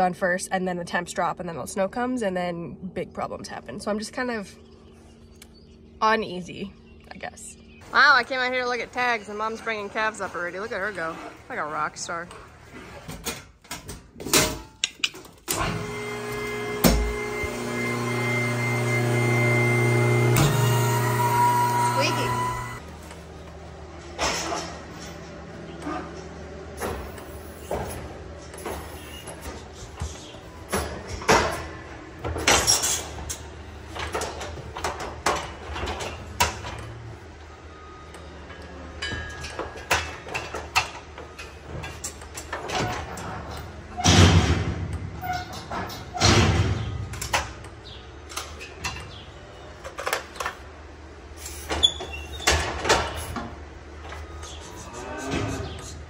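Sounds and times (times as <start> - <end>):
hydraulic pump motor humming: 15.5 - 22.8
metal gates clanking and banging: 30.7 - 37.0, 38.4 - 47.7.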